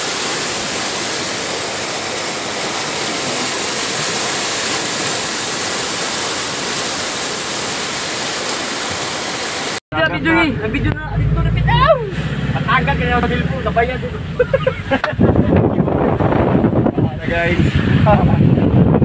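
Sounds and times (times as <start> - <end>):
river water rushing: 0.0 - 9.8, 10.6 - 15.3.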